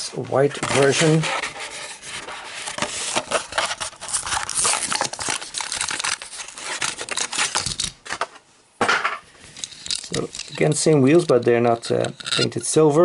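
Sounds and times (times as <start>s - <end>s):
plastic blister crackling and tearing: 2.9s - 8.0s.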